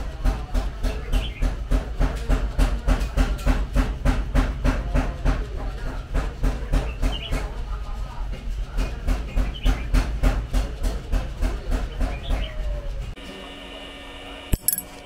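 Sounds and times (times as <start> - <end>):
hammer striking hot steel: 14.6 - 15.0.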